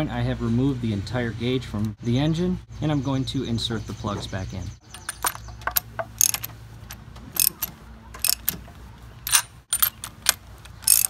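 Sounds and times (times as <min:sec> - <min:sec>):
socket ratchet clicking: 0:04.9 - 0:08.6, 0:09.3 - 0:11.0.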